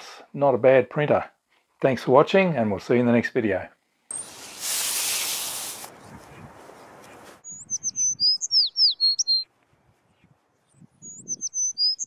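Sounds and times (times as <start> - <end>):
bird singing whistles: 7.4 - 9.5, 11.0 - 12.0.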